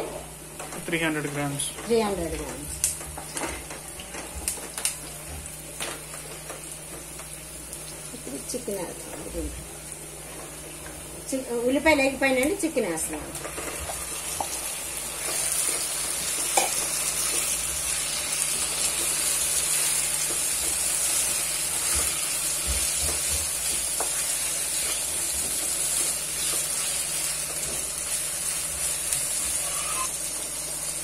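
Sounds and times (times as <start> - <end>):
chicken sizzling in hot oil: 3.2 - 31.0.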